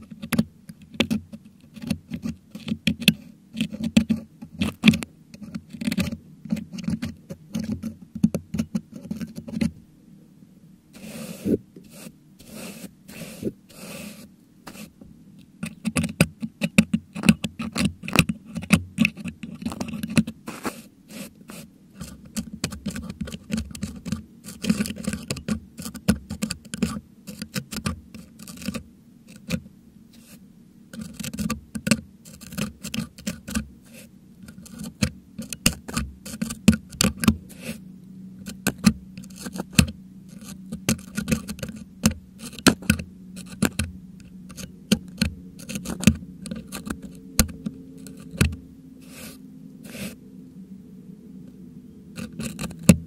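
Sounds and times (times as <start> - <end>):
metal hook scraping microphone grille: 32.2 - 37.8, 38.4 - 50.2, 52.1 - 53.0.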